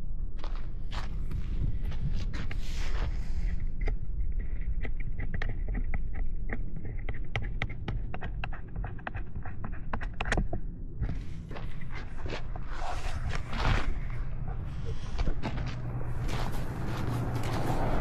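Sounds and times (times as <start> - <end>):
steady low rumble: 0.0 - 6.5, 10.7 - 18.0.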